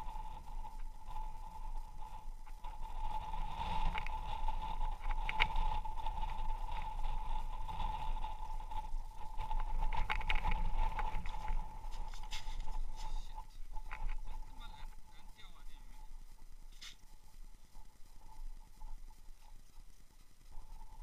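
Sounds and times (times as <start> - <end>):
high-pitched whine: 0.0 - 21.0
wind rumbling on microphone: 0.0 - 21.0.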